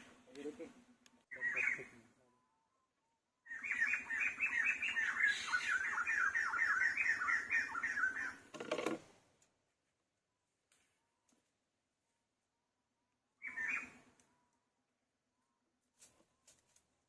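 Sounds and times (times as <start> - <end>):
high chirping animal calls: 1.3 - 8.5, 13.4 - 14.6.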